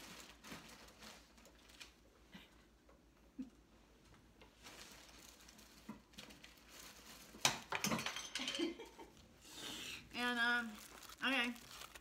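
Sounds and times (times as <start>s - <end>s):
rustling: 0.0s - 2.2s, 4.0s - 7.7s, 10.0s - 12.0s.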